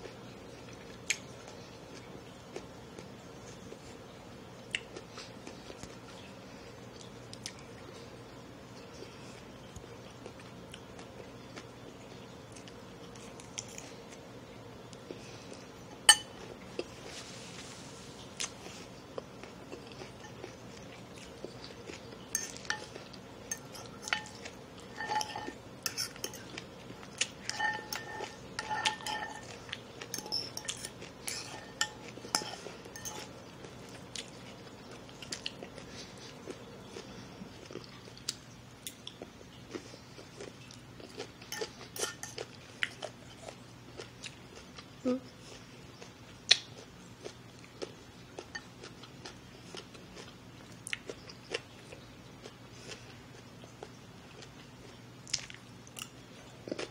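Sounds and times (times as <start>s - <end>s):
chewing crunchy salad: 0.0s - 8.2s, 8.8s - 56.9s
metal fork clinking against dish: 16.1s - 16.4s, 22.3s - 26.6s, 27.4s - 33.4s, 41.5s - 42.4s.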